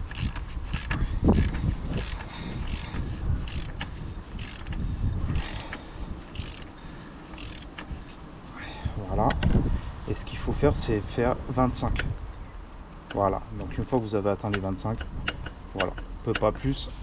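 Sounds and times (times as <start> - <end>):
torque wrench ratchet clicking: 0.0 - 6.8, 7.4 - 7.7.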